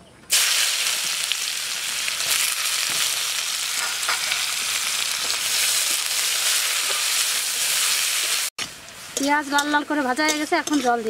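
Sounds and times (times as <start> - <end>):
onions sizzling in oil: 0.3 - 11.0
metal spatula scraping pan: 9.2 - 11.0.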